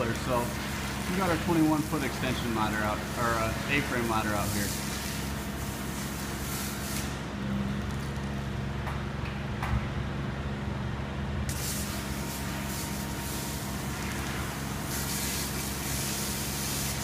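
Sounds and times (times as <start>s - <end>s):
pressure washer spray hissing: 0.0s - 7.2s, 11.5s - 17.0s
machine low hum: 0.0s - 17.0s.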